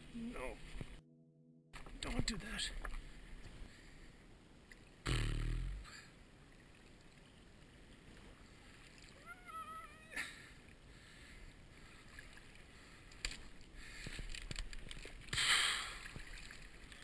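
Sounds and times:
water lapping on stony shore: 0:10.4 - 0:17.0.

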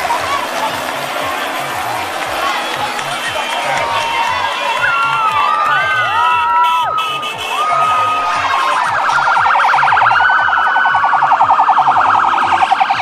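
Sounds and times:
low thudding beat: 0:07.9 - 0:13.0
electronic siren warbling: 0:08.1 - 0:13.0.

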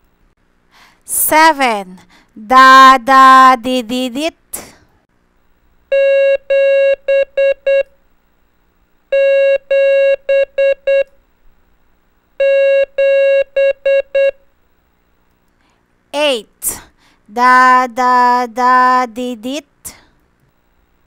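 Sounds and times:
buzzy morse code beeps: 0:05.9 - 0:07.9, 0:09.1 - 0:11.1, 0:12.4 - 0:14.4.

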